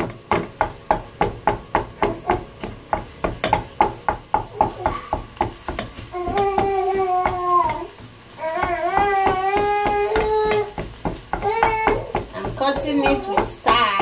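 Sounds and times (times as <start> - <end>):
spatula knocking on frying pan: 0.0 - 14.0.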